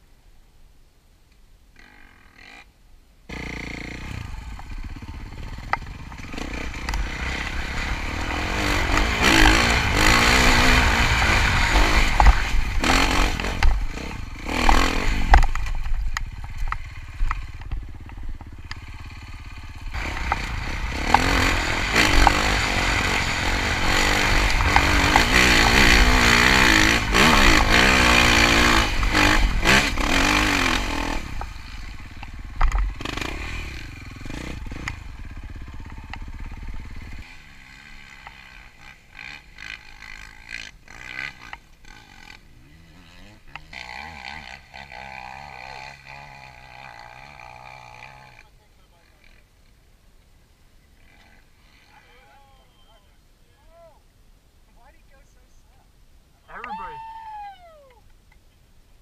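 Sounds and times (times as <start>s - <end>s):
dirt bike engine revving: 3.3s - 48.5s.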